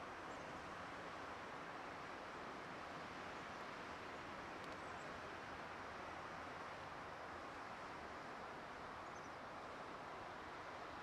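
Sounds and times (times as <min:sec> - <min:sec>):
faint tick: 0:04.6 - 0:04.9.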